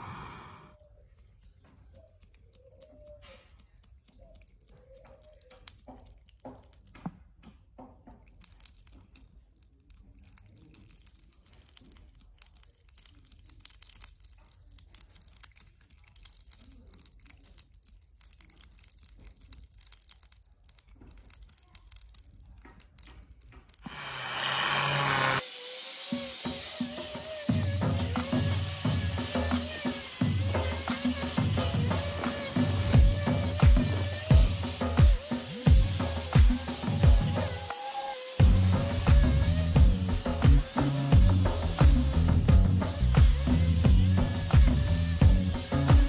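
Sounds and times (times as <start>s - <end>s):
hot metal crackling and ticking: 8.4s - 23.9s.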